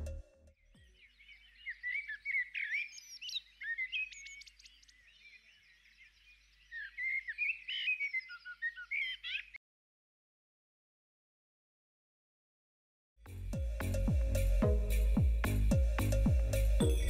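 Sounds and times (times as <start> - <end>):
recorded tropical birds chirping: 0.0 - 9.6.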